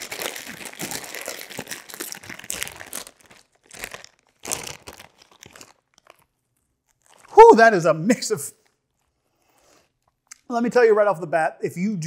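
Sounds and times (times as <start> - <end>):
plastic chip bag crinkling: 0.0 - 7.5.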